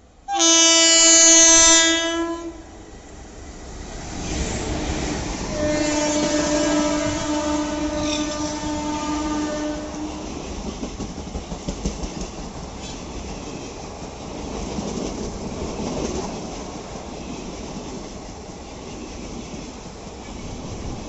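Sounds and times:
locomotive horn: 0.3 - 2.7, 5.5 - 10.3
train wheels clicking over rail joints: 9.9 - 21.0.

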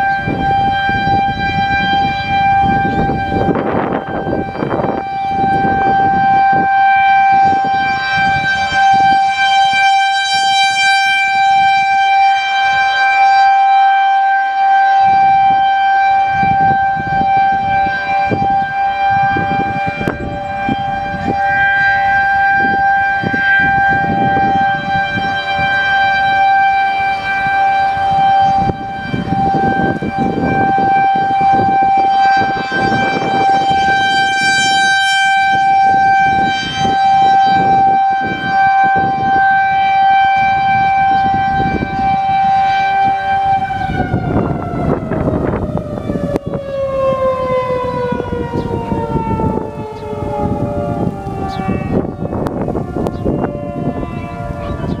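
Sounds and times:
warning siren steady tone: 0.0 - 55.0
wind buffeting microphone: 0.0 - 55.0.

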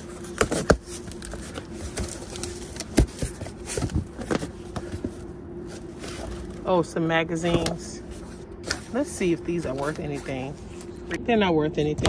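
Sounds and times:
cardboard scraping and rustling: 0.0 - 6.8, 7.4 - 11.1.

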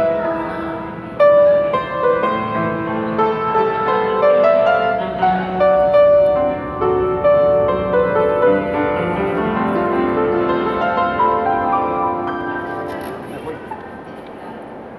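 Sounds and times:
upright piano playing: 0.0 - 13.7.

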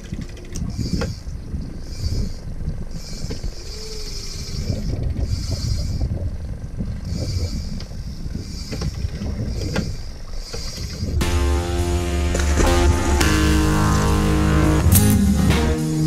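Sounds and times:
low rumble of hull and water: 0.0 - 11.9.

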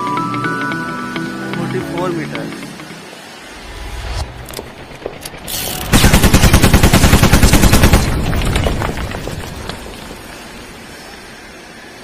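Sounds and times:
rapid mechanical hammering rattle: 4.5 - 8.3.

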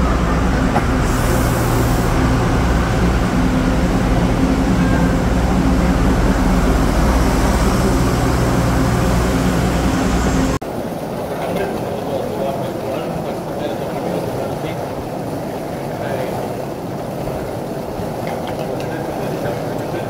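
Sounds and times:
diesel railcar engine drone: 0.0 - 10.7
train passing: 0.0 - 20.0.

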